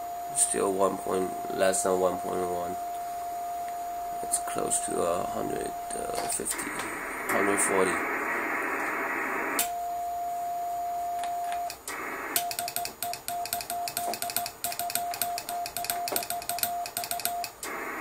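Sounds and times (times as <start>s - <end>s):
morse code tone: 0.0s - 6.8s, 12.4s - 17.6s
radio receiver hiss: 0.0s - 9.8s, 11.4s - 14.7s, 15.4s - 18.0s.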